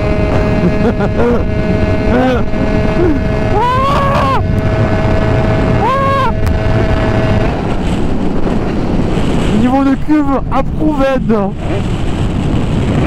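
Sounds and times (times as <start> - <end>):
two-stroke moped engine: 0.0 - 9.2
wind rush on microphone: 0.0 - 13.0.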